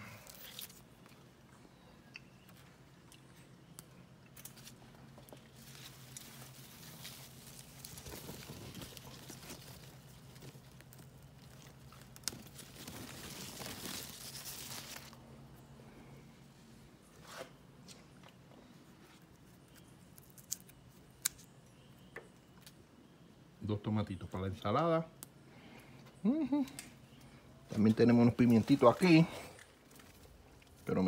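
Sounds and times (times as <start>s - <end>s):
plant leaves rustling and crackling: 0.0s - 1.2s, 3.7s - 15.7s, 26.4s - 31.0s
faint low hum: 0.0s - 31.0s.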